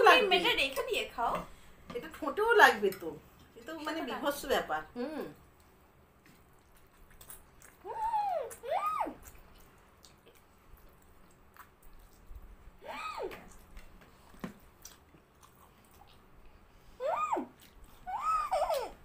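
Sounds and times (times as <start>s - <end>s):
short high-pitched cry: 12.8s - 13.3s, 17.0s - 17.5s.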